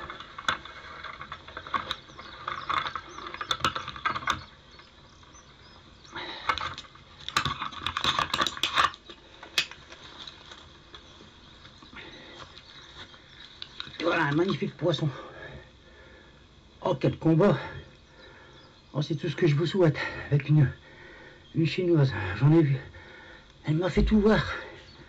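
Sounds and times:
close rustling and clicking: 0.0s - 14.8s.

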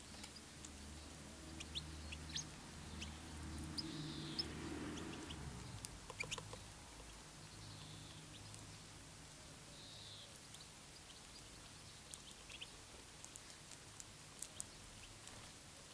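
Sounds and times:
songbirds chirping: 0.0s - 15.9s.

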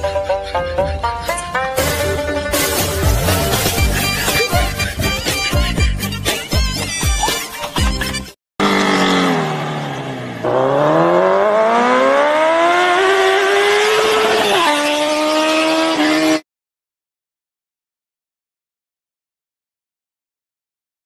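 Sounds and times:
music with a beat: 0.1s - 8.3s
vehicle engine accelerating: 8.6s - 16.4s.

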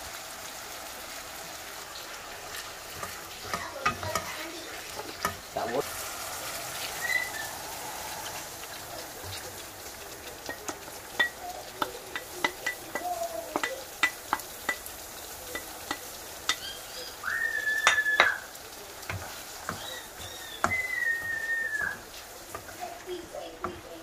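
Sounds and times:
faint sizzle: 0.0s - 24.0s
spatula knocking on bowl and wok: 3.0s - 4.5s, 10.4s - 16.6s, 17.8s - 18.4s, 19.0s - 22.8s, 23.6s - 23.9s
high whistle-like tone: 6.9s - 7.6s, 20.3s - 22.0s.

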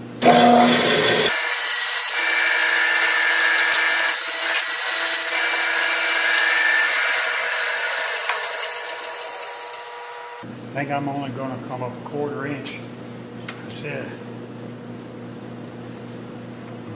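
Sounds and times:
band saw cutting wood: 0.2s - 10.4s.

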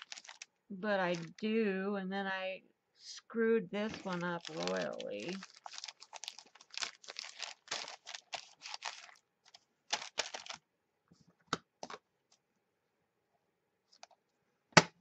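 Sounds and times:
paper rustling and crinkling: 0.0s - 0.5s, 3.8s - 10.6s.

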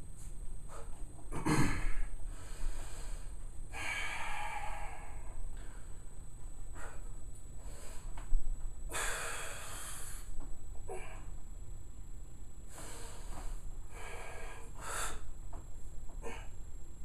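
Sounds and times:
man breathing hard: 1.8s - 6.0s, 6.7s - 8.3s, 8.9s - 11.4s, 12.7s - 15.4s.

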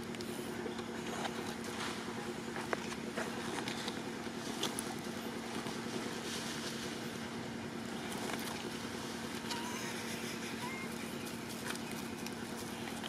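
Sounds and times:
faint clicks and rustles: 0.0s - 7.3s, 7.9s - 9.6s
motor humming: 0.0s - 13.0s.

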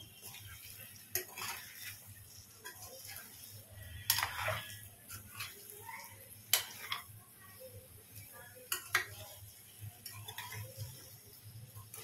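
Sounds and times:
spoon scraping pan: 0.0s - 12.0s
spoon clinking against pan: 4.0s - 5.7s, 8.6s - 9.3s.

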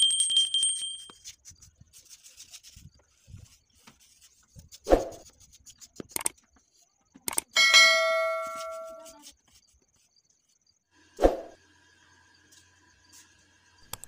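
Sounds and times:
two-tone electronic chime: 7.6s - 9.0s.

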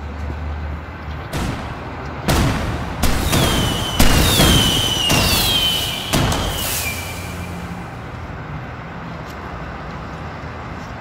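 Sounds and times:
firework bangs: 1.3s - 7.9s
firework whistles gliding downward: 3.0s - 7.9s.

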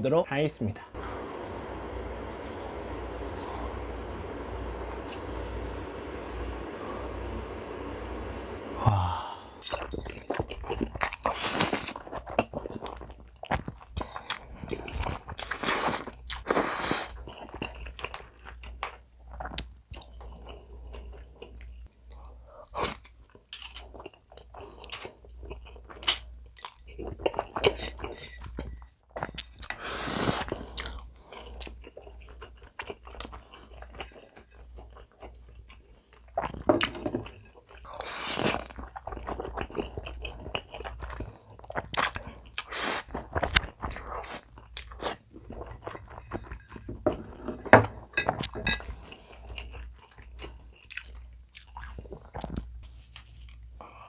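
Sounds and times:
chewing with wet mouth clicks: 30.7s - 46.8s, 49.4s - 52.7s
noodle slurps: 37.9s - 40.4s.

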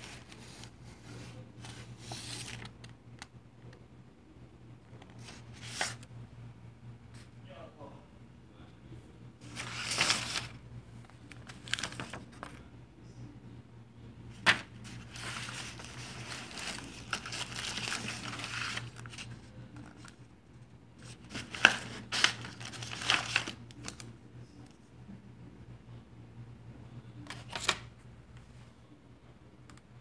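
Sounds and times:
paper rustling and crinkling: 0.0s - 3.3s, 4.9s - 6.1s, 9.4s - 12.7s, 14.3s - 20.2s, 21.0s - 24.1s, 27.3s - 27.9s
steady low hum: 0.0s - 27.3s.

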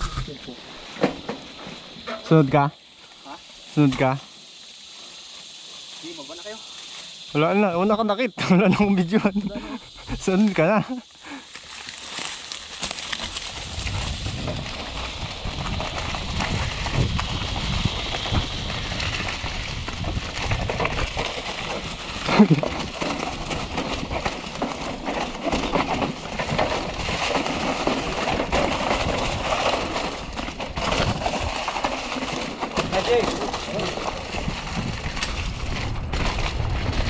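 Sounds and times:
bike tyres crunching over leaves: 0.1s - 37.0s
bike frame and chain rattling: 8.7s - 37.0s.

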